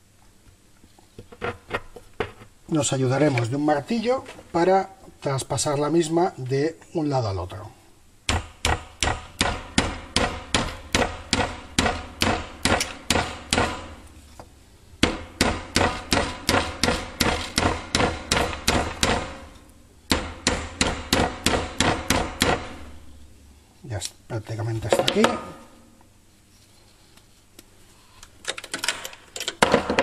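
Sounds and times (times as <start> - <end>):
hammer striking metal rod: 8.3 - 14.0, 15.0 - 19.5, 20.1 - 22.8.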